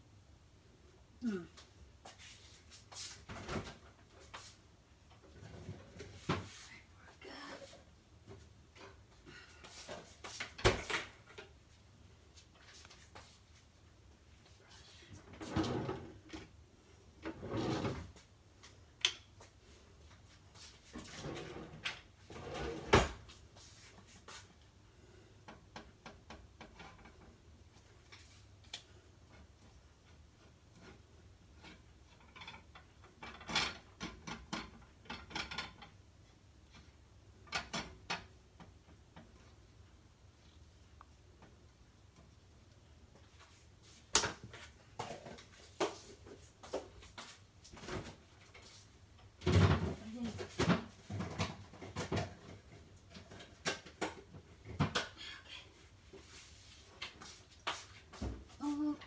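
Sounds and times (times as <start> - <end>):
household knocks and clatters: 43.3 - 55.1.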